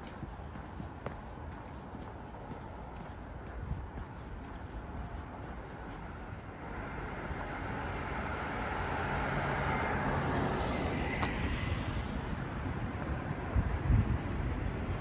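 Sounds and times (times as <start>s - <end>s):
motor vehicle passing: 0.0s - 15.0s.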